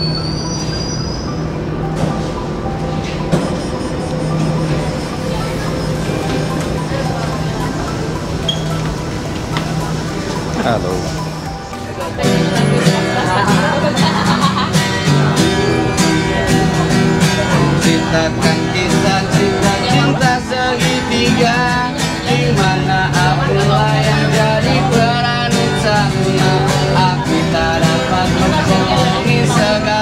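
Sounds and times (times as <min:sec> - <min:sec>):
acoustic guitar strumming: 0:00.0 - 0:30.0
person singing: 0:15.6 - 0:30.0.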